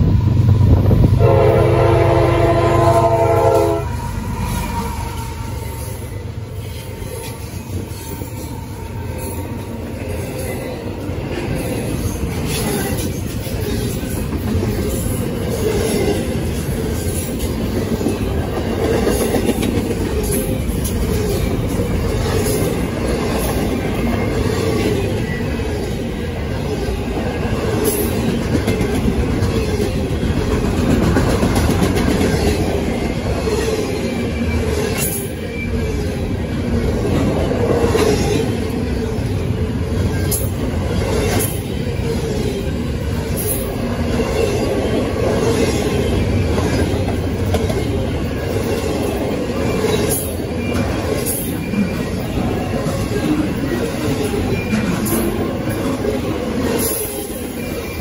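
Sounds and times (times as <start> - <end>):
train wheels rumbling on rail: 0.0 - 58.0
wheels clacking over rail joints: 26.7 - 36.1.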